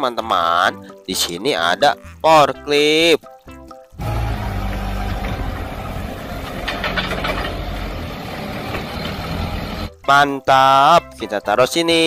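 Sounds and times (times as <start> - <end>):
forklift engine running: 4.0 - 9.9.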